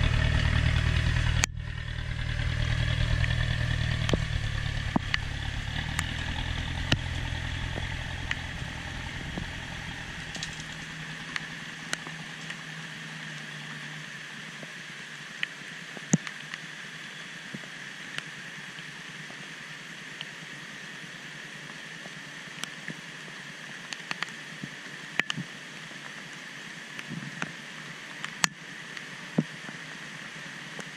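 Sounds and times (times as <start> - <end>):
truck engine rumble: 0.0 - 14.4
steady high hiss: 0.0 - 30.9.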